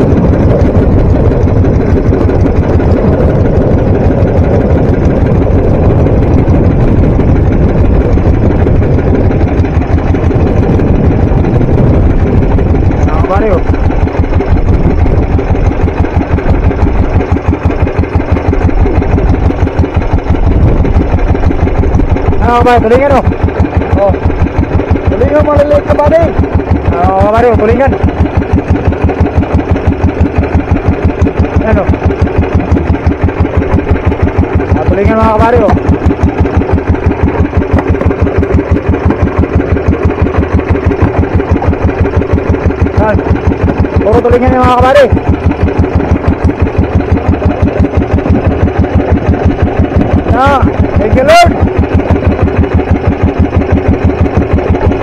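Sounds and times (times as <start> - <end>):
boat engine chugging: 0.0 - 55.0.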